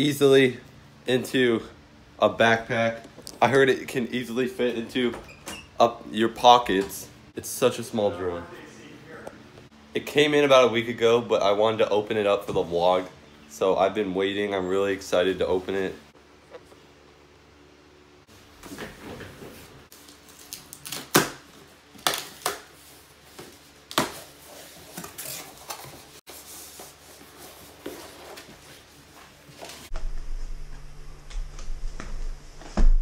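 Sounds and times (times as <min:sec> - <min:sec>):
steady low hum: 0:27.7 - 0:33.0.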